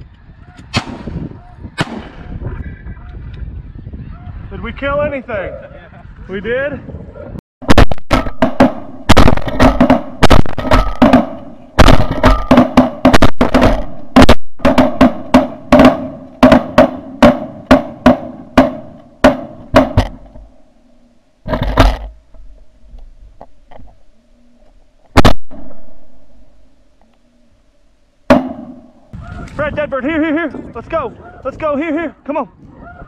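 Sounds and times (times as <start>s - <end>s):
shotgun blasts: 0.7s - 1.2s, 1.8s - 2.3s, 7.6s - 20.4s, 25.2s - 26.2s
geese calling: 28.8s - 29.6s.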